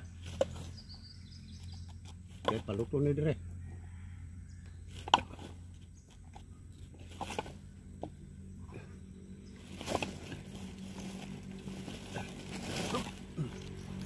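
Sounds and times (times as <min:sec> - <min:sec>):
steady low hum: 0:00.0 - 0:14.0
coconut shells knocking and clattering: 0:01.6 - 0:02.9, 0:04.9 - 0:08.2.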